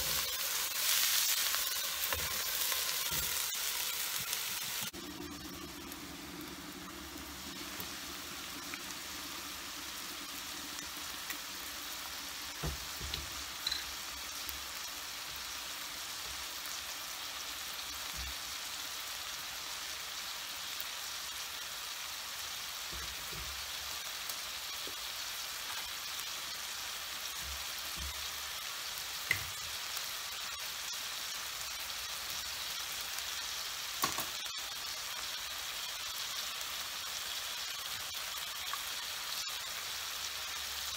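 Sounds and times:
food sizzling in a frying pan: 0.0s - 40.9s
metal spoon clinking on pan: 13.6s - 14.0s.

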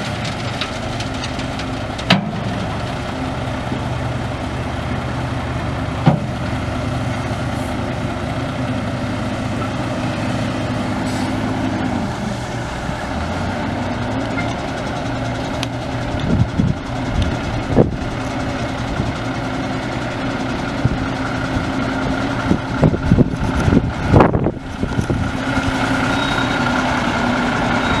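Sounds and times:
diesel truck engine running: 0.0s - 28.0s
clunks and knocks: 0.1s - 2.7s, 6.0s - 6.5s.

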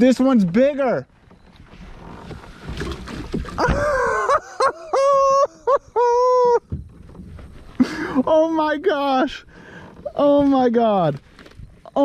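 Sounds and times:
water splashing: 1.9s - 4.6s
man yelling with delight: 3.6s - 6.6s.

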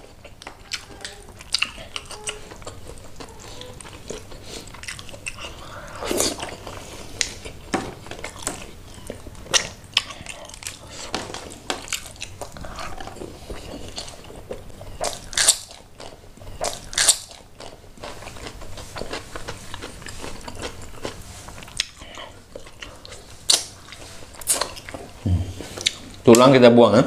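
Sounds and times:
wet chewing and lip smacks: 0.0s - 10.9s, 25.8s - 26.2s.

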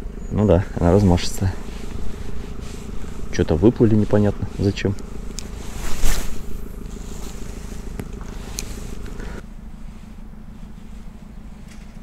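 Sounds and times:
low hum: 0.0s - 12.0s
short rush of noise: 4.4s - 9.0s.

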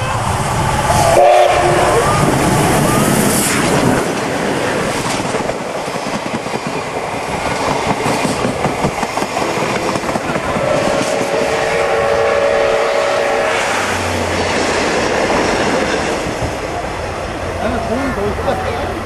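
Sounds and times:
steam train rumbling past: 0.0s - 19.0s.

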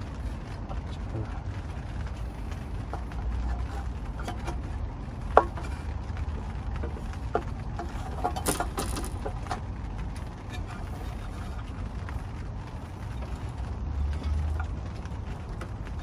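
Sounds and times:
metal knocks and clinks: 8.2s - 9.3s.

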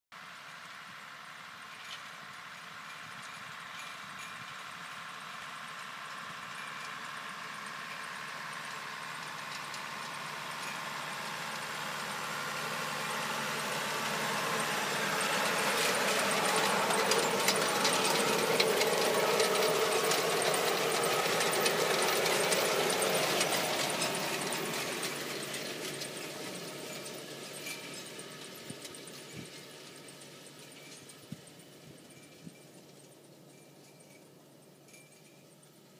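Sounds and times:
tractor diesel engine under load: 0.2s - 34.6s
planter clicking and rattling: 1.7s - 34.3s.

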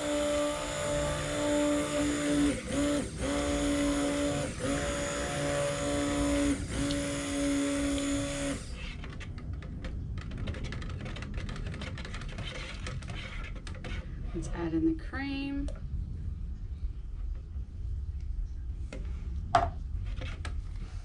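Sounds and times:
stick blender motor humming: 0.0s - 8.9s.

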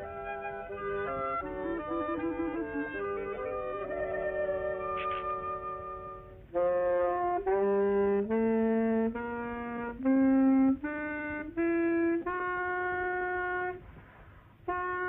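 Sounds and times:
reedy wind instrument melody: 0.0s - 15.0s.

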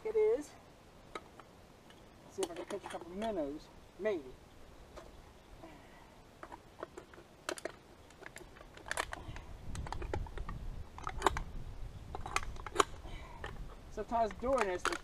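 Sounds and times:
drink can crinkling and clicking: 6.4s - 11.5s, 12.1s - 13.6s, 14.2s - 15.0s.

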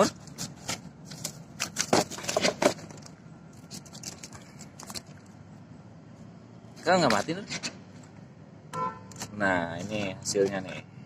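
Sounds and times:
mesh net bag of fish rustling: 0.4s - 5.4s.

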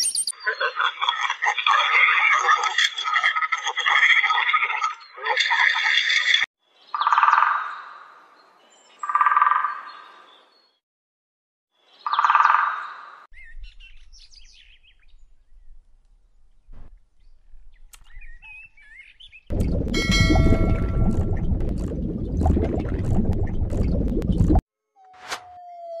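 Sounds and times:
small birds twittering: 11.9s - 15.8s, 17.2s - 19.5s
low rumble: 19.5s - 24.6s.

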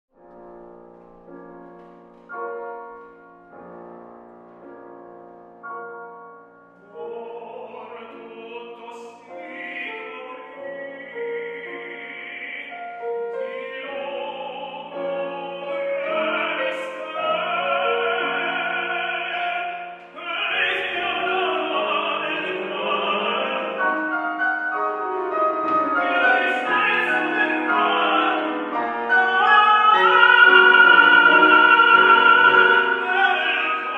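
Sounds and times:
piano chords: 0.1s - 33.9s
operatic singing: 6.8s - 33.9s.

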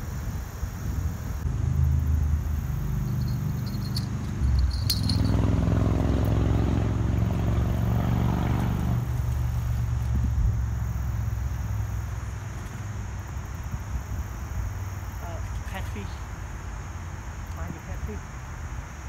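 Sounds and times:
engine humming: 1.4s - 15.4s.

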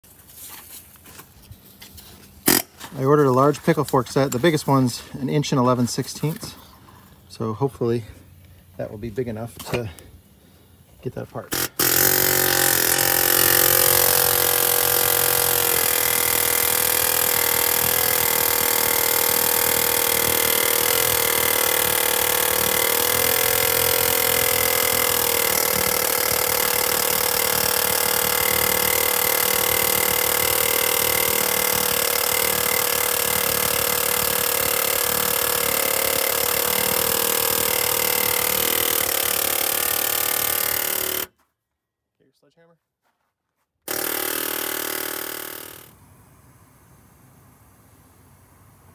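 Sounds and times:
pneumatic air hammer hammering: 2.4s - 2.9s, 11.5s - 41.3s, 43.9s - 45.9s.

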